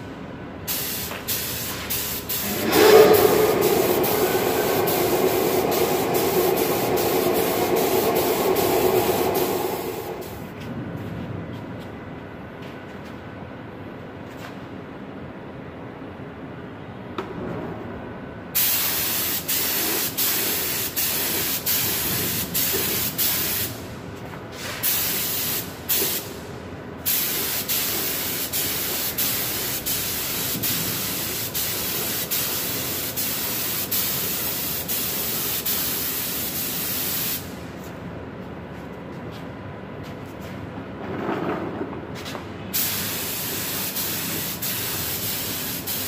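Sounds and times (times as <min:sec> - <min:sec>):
spray gun hissing: 0:00.7 - 0:10.4, 0:18.6 - 0:23.7, 0:24.8 - 0:26.2, 0:27.1 - 0:37.5, 0:42.8 - 0:46.0.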